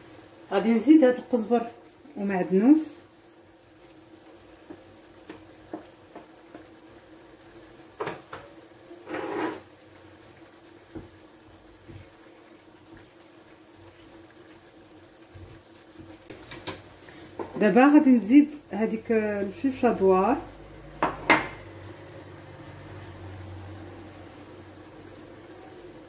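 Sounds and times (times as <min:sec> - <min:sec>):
sauce bubbling: 0:00.0 - 0:26.0
spoon scraping clay pot: 0:09.0 - 0:09.6.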